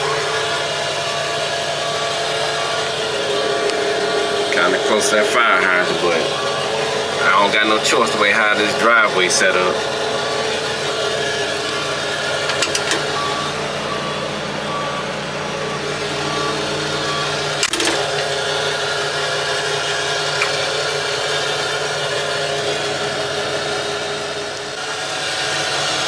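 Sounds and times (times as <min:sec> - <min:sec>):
travel alarm beeping: 0:00.0 - 0:08.2, 0:10.2 - 0:18.8
crane diesel engine running: 0:00.0 - 0:26.0
metal clank: 0:12.4 - 0:13.2, 0:17.6 - 0:18.3.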